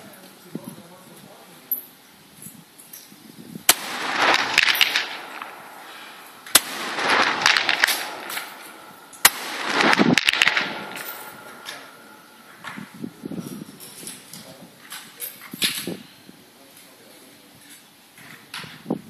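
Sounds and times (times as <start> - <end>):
rifle shots with rolling echo: 3.7 - 13.3.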